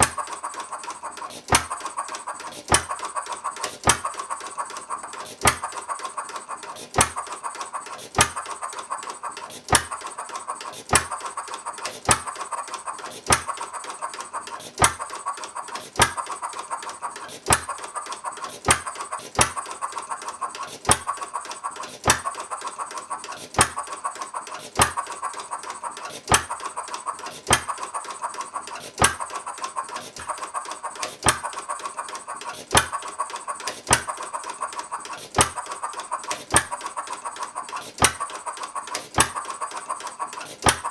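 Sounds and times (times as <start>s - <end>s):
mechanical clicking: 0.0s - 40.9s.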